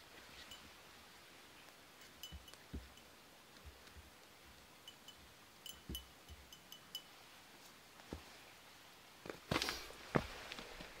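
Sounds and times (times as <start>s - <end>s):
small metallic clinks: 0.3s - 0.8s, 2.0s - 7.2s.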